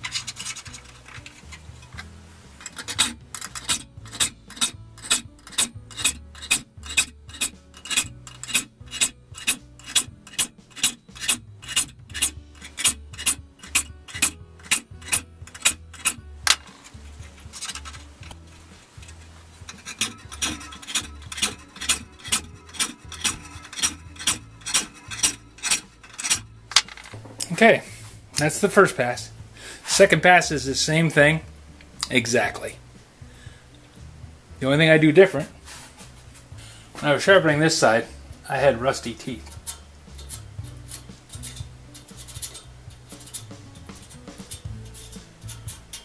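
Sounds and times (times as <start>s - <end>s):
saw file rasping on saw teeth: 2.8s - 16.2s, 19.7s - 26.5s.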